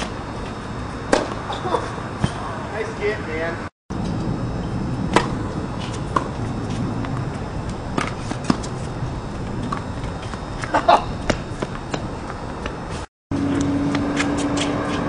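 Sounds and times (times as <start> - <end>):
steady background hum: 0.0 - 15.0
tennis ball bouncing: 1.1 - 1.5, 5.1 - 12.8
racket hitting tennis ball: 1.1 - 2.4, 5.1 - 8.9.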